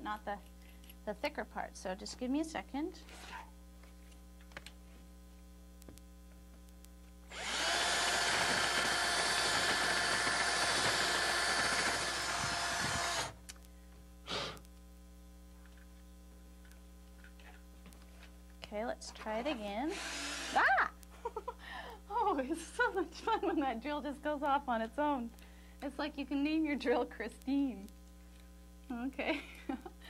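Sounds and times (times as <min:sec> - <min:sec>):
power drill boring wood: 0:07.3 - 0:13.4, 0:19.9 - 0:20.7.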